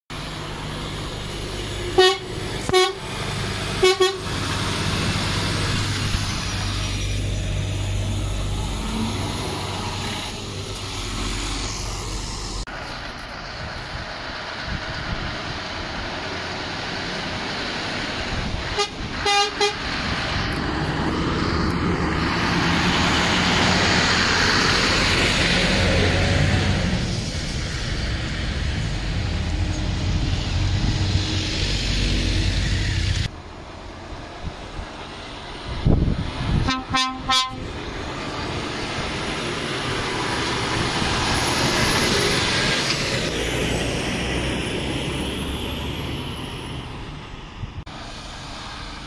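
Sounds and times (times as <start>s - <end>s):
lorry engines running: 0.1s - 49.0s
lorry horns tooting: 1.8s - 4.4s, 18.6s - 19.9s, 36.6s - 37.8s.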